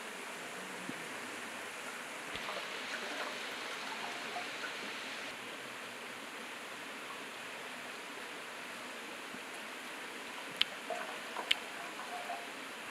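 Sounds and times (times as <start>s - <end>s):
steady hiss: 0.0s - 12.9s
water trickling and dripping: 1.7s - 5.4s, 10.5s - 12.9s.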